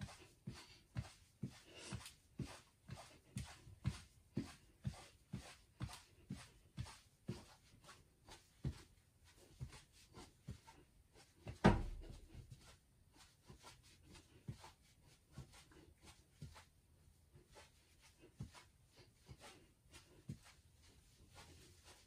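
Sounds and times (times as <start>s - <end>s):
feet thudding on hard floor: 11.4s - 12.6s.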